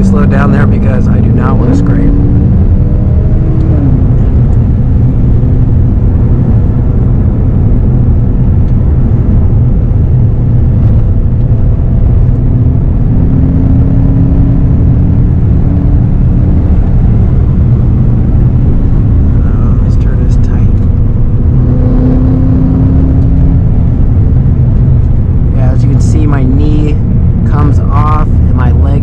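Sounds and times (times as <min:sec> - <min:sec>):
car engine cruising: 0:00.0 - 0:29.0
road rumble: 0:00.0 - 0:29.0.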